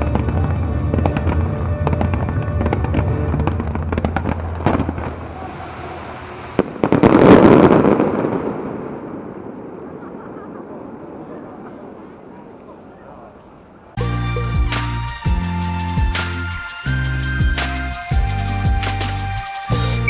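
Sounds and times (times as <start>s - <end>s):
crackling firework shells: 0.0s - 12.8s
fireworks cracks and bangs: 0.0s - 12.8s
loud show music: 14.0s - 20.0s.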